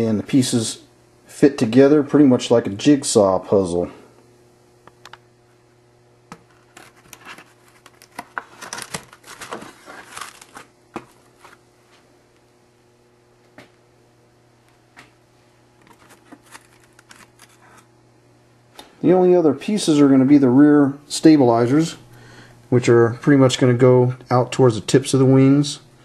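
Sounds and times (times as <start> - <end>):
foam board rustling and scraping: 6.5 - 11.6.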